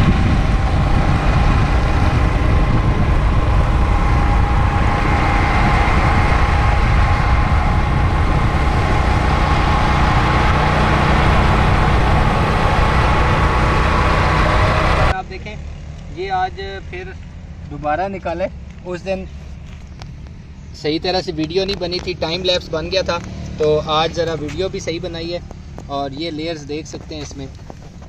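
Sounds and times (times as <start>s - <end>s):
faint steady whine: 0.0s - 15.3s
vehicle engine and wind noise: 0.0s - 28.0s.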